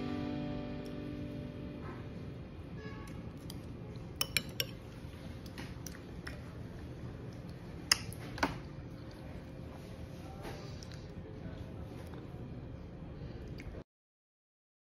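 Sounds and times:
spoon clinking ceramic dish: 4.2 - 4.8.

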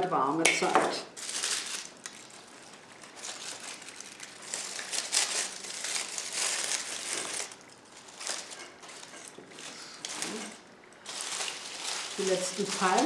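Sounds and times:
dry leaves crinkling and rustling: 1.2 - 13.0.

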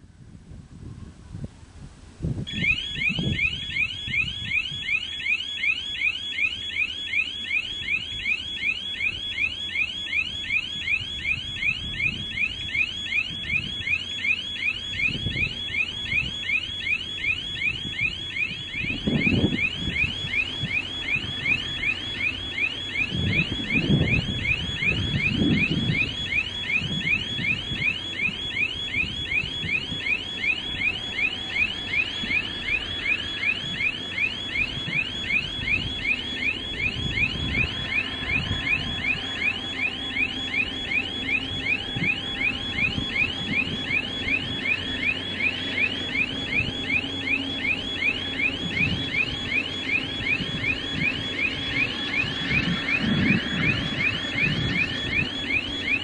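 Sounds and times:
level-crossing warning chirp: 2.5 - 56.0
diesel locomotive rumble: 14.9 - 56.0.

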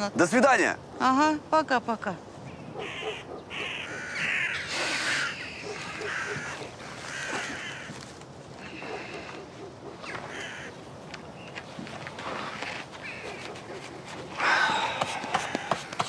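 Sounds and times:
crows cawing: 2.7 - 10.8, 12.4 - 13.5, 14.4 - 16.0.

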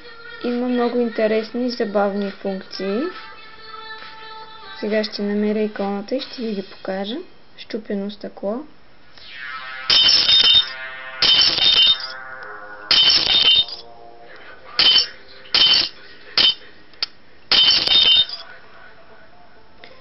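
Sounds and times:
glass shattering from phone speaker: 9.9 - 12.2, 12.9 - 13.8, 14.8 - 16.6, 17.5 - 18.4.

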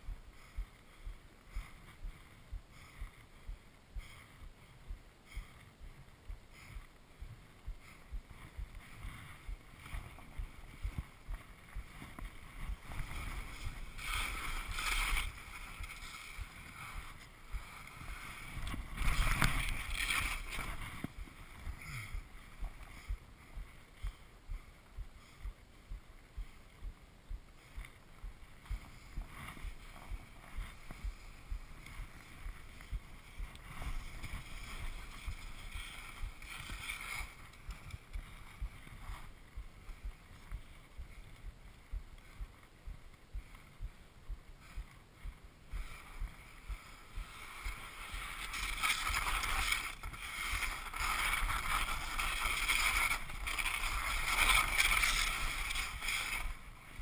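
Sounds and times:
skis swishing on snow: 7.3 - 23.9, 27.6 - 42.8, 45.8 - 57.0.

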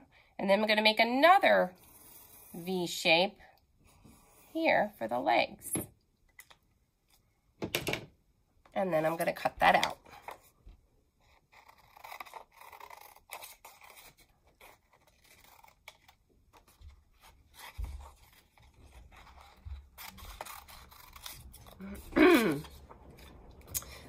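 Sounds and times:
scissors snipping paper: 11.3 - 24.0.

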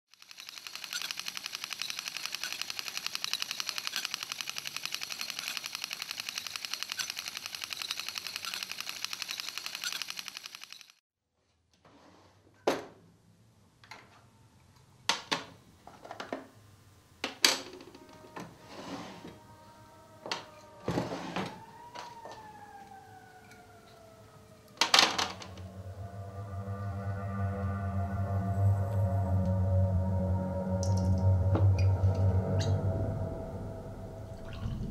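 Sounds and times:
film projector clattering: 0.1 - 11.0
low music drone: 17.7 - 34.9
falling pitch tone: 17.9 - 34.9.

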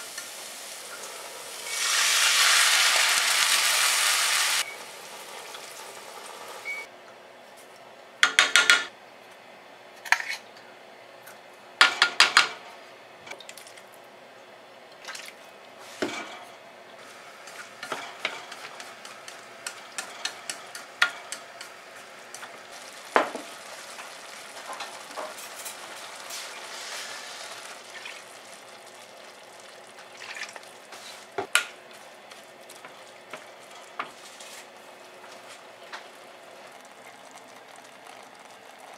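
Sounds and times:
faint sizzle: 0.0 - 6.9, 17.0 - 38.9.

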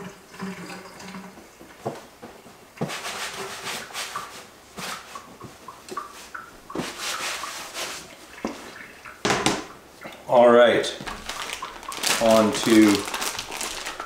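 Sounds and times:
towel swishing on cutting board: 6.2 - 8.1.

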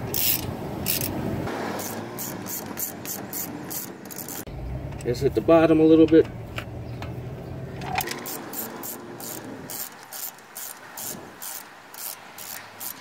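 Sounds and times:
ratchet wrench clicking: 0.0 - 1.2, 1.8 - 4.5, 8.0 - 13.0.

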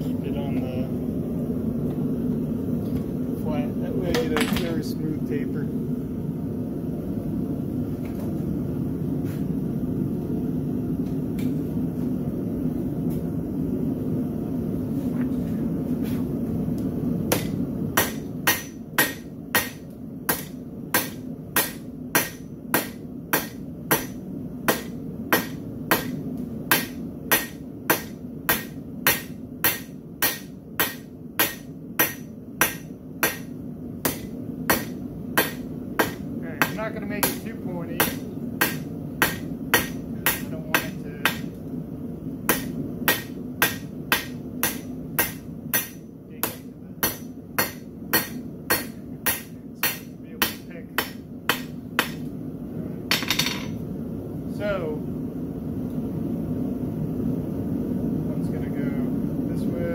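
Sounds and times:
steady low noise: 0.0 - 18.5
hammer striking hot metal on anvil: 17.3 - 41.6, 42.5 - 52.3.

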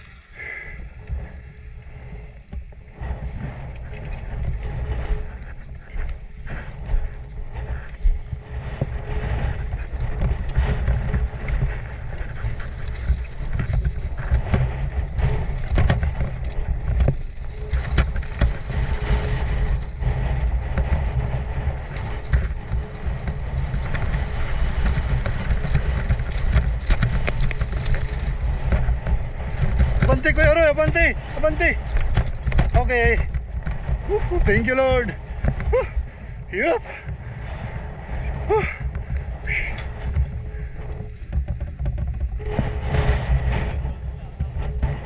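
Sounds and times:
motorcycle engine rumbling: 0.0 - 45.0
wind on microphone: 0.0 - 45.0
knocks and clatter: 7.9 - 36.0, 38.8 - 45.0.

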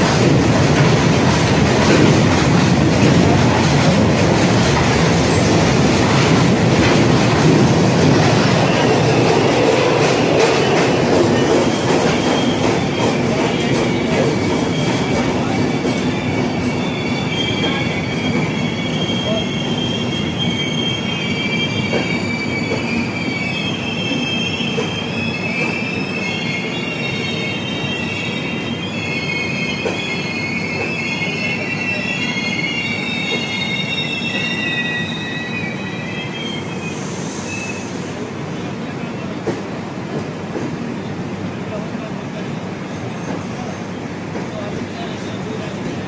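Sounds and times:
train wheels rumbling on rails: 0.0 - 46.0
high-pitched wheel squeal: 16.2 - 37.9.

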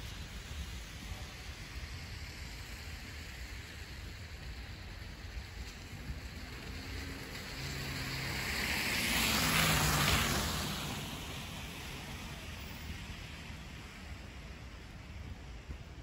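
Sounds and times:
background traffic: 0.0 - 16.0
vehicle passing: 6.7 - 11.6.

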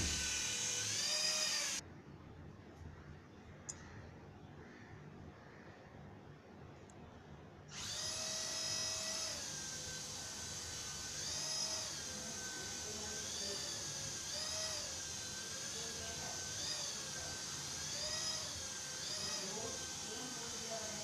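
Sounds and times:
toy helicopter motor whining: 0.0 - 1.8, 7.7 - 21.0.

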